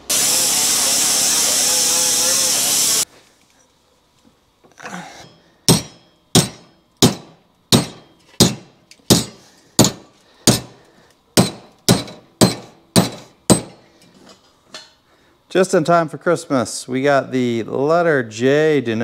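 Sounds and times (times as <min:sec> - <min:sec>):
hammer striking steel: 0:05.2 - 0:10.8, 0:11.4 - 0:13.9.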